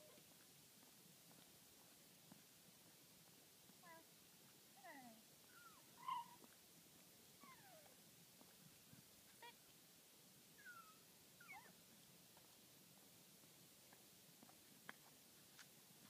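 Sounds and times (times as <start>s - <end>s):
high-pitched animal calls: 5.5s - 6.4s, 10.6s - 11.7s.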